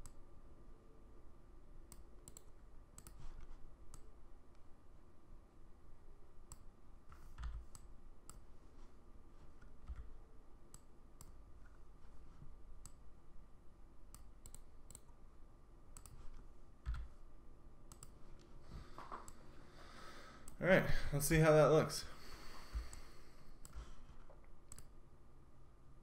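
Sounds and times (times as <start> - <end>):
computer mouse clicks: 0.0 - 0.2, 1.9 - 4.6, 6.4 - 8.6, 9.5 - 11.8, 12.8 - 13.1, 14.1 - 15.2, 15.9 - 17.2, 17.9 - 19.4, 22.7 - 25.0.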